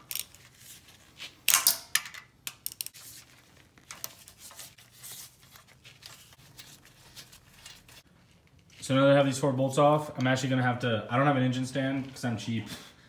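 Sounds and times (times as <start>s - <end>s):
socket ratchet rasping and clicking: 0.0s - 0.4s, 1.5s - 3.0s.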